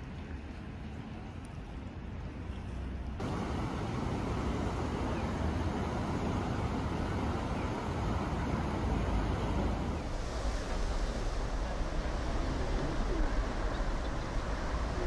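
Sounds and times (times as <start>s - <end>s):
outdoor hum: 2.6s - 15.0s
river rushing: 3.2s - 15.0s.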